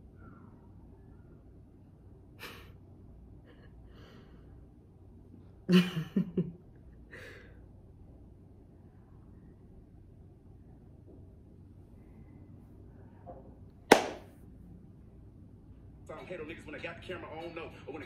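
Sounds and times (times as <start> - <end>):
soft breaths: 3.4 - 5.6, 11.7 - 13.6
woman laughing: 5.7 - 6.6.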